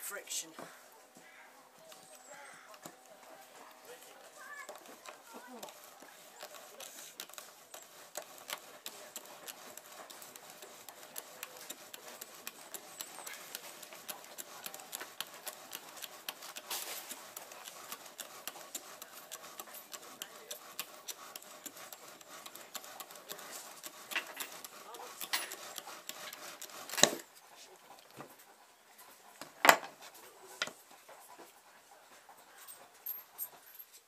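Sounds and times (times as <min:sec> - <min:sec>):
wooden spindle grinding: 0:02.0 - 0:27.4.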